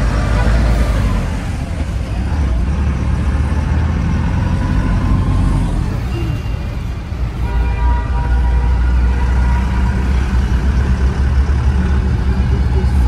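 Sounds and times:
diesel truck engine running: 0:00.0 - 0:07.4, 0:08.2 - 0:13.0
road noise: 0:00.0 - 0:13.0.

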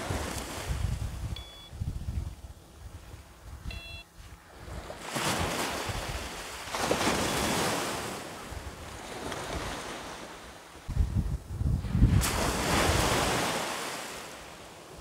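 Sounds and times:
waves washing onto beach: 0:00.0 - 0:01.0, 0:04.2 - 0:11.1, 0:11.8 - 0:15.0
wind buffeting microphone: 0:00.0 - 0:07.6, 0:08.4 - 0:13.6
metal detector beep: 0:01.3 - 0:01.8, 0:03.6 - 0:04.1.

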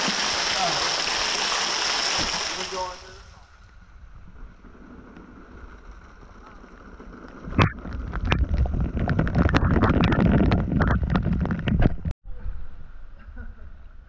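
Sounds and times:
water splashing and churning: 0:00.0 - 0:03.6
faint steady hiss: 0:00.0 - 0:07.4.

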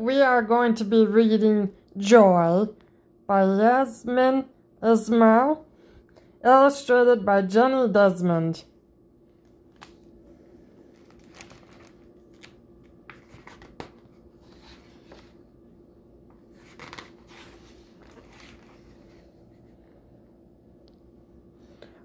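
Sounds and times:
faint steady hum: 0:00.0 - 0:22.0
book pages turning: 0:10.9 - 0:15.4, 0:16.3 - 0:20.0.

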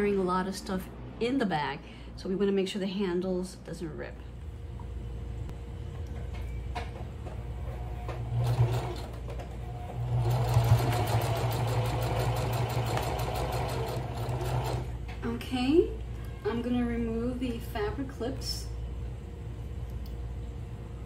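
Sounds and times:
electric sewing machine stitching: 0:08.2 - 0:14.9.

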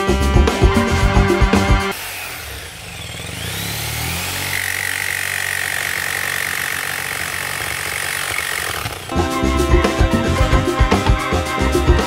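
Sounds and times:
electric jigsaw cutting rubber: 0:01.9 - 0:09.2.

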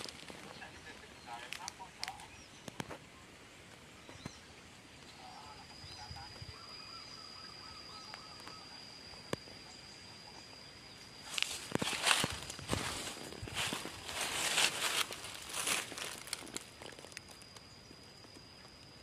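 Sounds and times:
footsteps through dry vegetation: 0:00.0 - 0:00.6, 0:11.3 - 0:17.3
high-pitched insect drone: 0:03.3 - 0:19.0
faint bird calls: 0:03.9 - 0:11.1.

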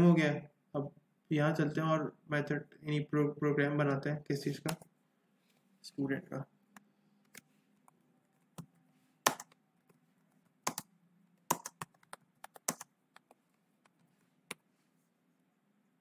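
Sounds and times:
typing on computer keyboard: 0:09.3 - 0:09.6, 0:10.6 - 0:10.9, 0:11.5 - 0:14.0.

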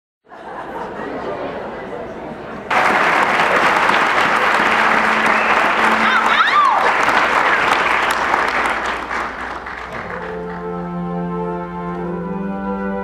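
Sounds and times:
audience applauding: 0:02.7 - 0:10.8
shout from crowd: 0:05.1 - 0:07.1.

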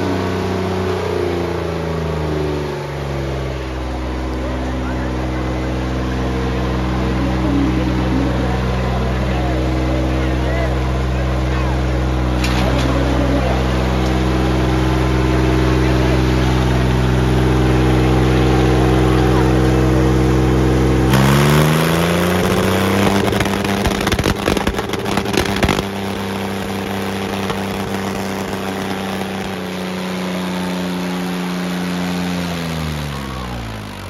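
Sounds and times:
tractor diesel engine revving: 0:00.0 - 0:34.0
crackling noise: 0:21.1 - 0:31.1.

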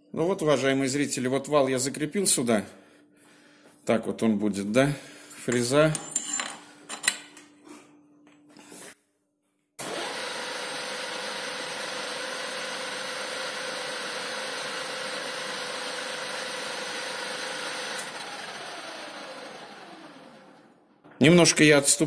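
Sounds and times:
metal clinks: 0:05.9 - 0:07.3.

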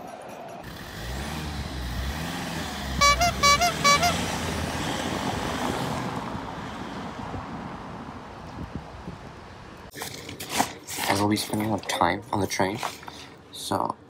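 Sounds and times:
car horn toots: 0:03.0 - 0:04.5.

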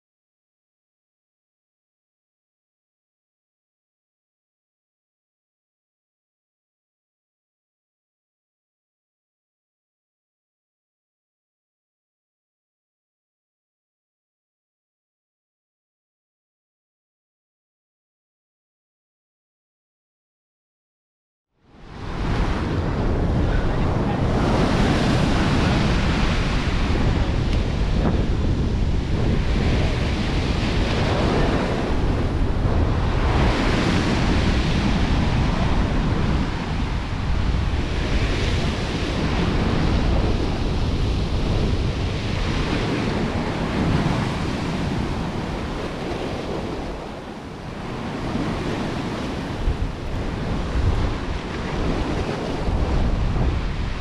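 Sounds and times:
sea waves washing in: 0:21.6 - 0:54.0
wind buffeting microphone: 0:21.7 - 0:54.0.

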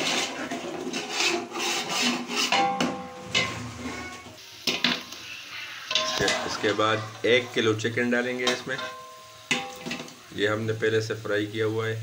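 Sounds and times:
metal ladle scraping cooking pot: 0:00.0 - 0:07.6.

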